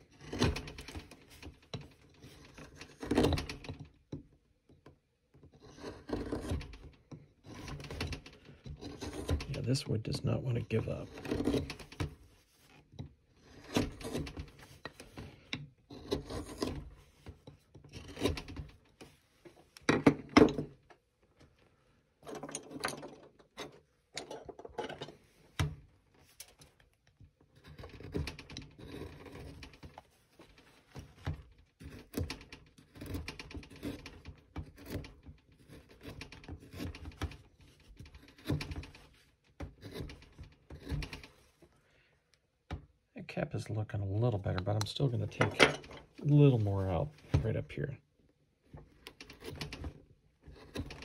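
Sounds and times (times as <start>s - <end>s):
carving tool cutting wood: 0.0s - 4.0s, 5.4s - 9.7s, 11.0s - 12.2s, 12.8s - 17.0s, 17.7s - 18.7s, 27.4s - 30.1s, 31.8s - 41.4s, 48.9s - 51.0s.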